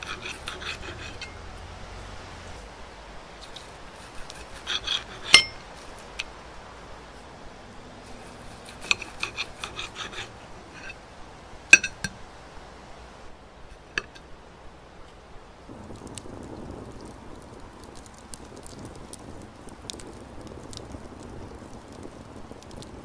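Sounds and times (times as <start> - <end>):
knife scraping against plate: 0.0 - 1.4, 3.4 - 5.6, 8.1 - 11.0.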